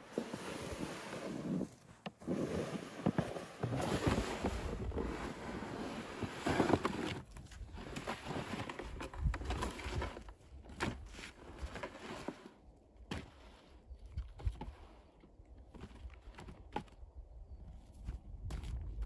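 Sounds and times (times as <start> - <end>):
sled scraping over snow: 0.0 - 13.9.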